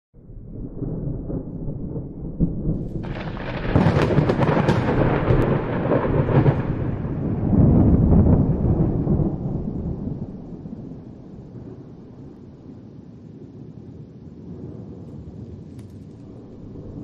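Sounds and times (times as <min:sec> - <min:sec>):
thunder rumbling and cracking: 0:00.2 - 0:17.0.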